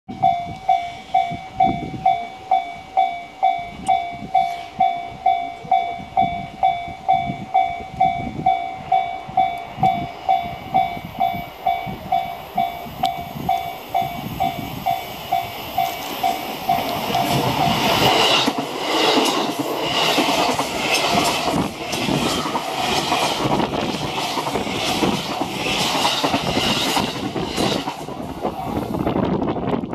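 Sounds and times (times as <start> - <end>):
level-crossing warning bell: 0.1 - 24.3
train wheels clattering over rail joints: 15.3 - 28.6.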